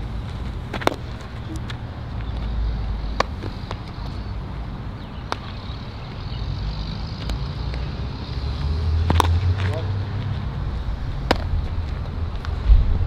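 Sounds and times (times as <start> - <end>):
wind on microphone: 10.4 - 13.0
baseball bat cracks: 11.2 - 11.5.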